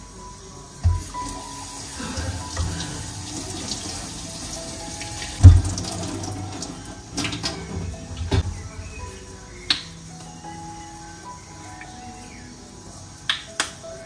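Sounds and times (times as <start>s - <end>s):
knocks in sink: 0.8s - 1.1s, 5.4s - 6.0s
tap running into steel sink: 5.2s - 8.6s.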